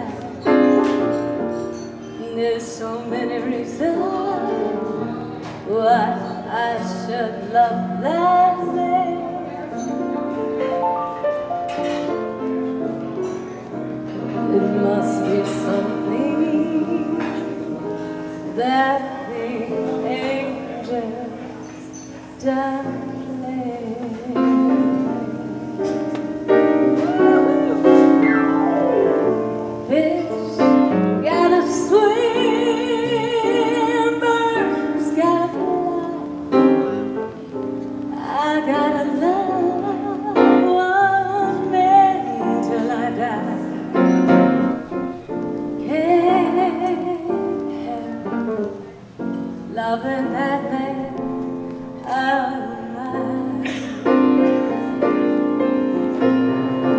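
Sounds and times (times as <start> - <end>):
piano accompaniment: 0.0 - 56.9
woman singing with vibrato: 2.2 - 4.8, 14.4 - 21.5, 29.4 - 36.4, 38.1 - 43.9, 45.8 - 48.9, 52.0 - 54.0.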